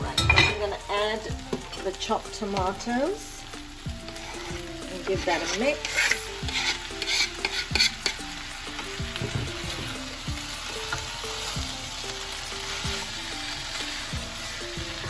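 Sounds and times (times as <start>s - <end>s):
curry sizzling in pan: 0.0s - 15.0s
spoon stirring: 4.1s - 9.7s
wooden spoon scraping chopping board: 5.2s - 8.2s.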